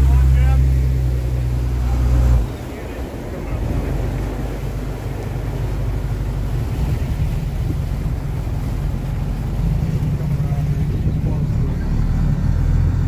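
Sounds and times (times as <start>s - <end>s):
diesel boat engine rumbling: 0.0s - 13.0s
wind on microphone: 0.0s - 13.0s.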